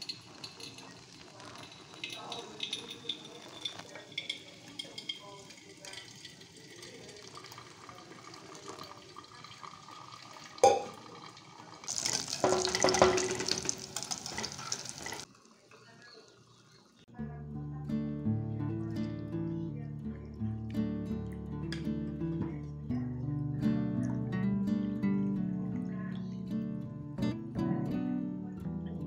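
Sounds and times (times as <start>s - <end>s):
water trickling onto coffee grounds: 0.0s - 17.1s.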